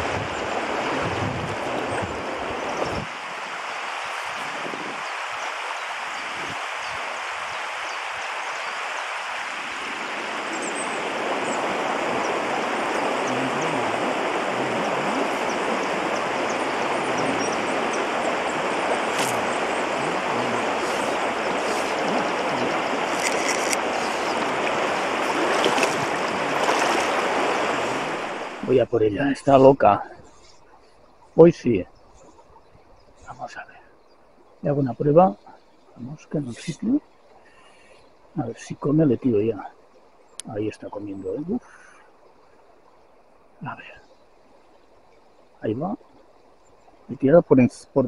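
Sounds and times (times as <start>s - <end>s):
river water rushing: 0.0s - 32.5s.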